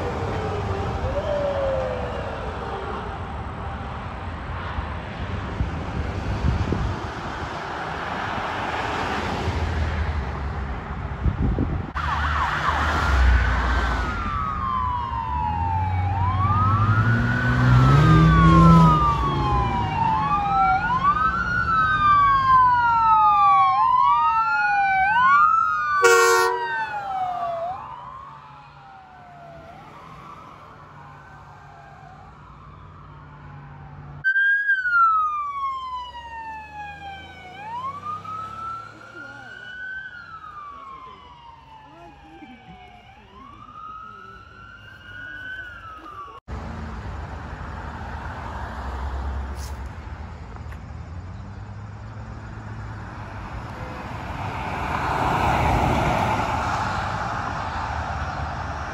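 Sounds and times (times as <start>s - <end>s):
police siren wailing: 0.0s - 4.8s, 12.0s - 46.5s
emergency vehicle siren wailing: 0.0s - 6.4s, 11.9s - 46.6s, 52.6s - 58.9s
short horn blast: 26.0s - 26.7s.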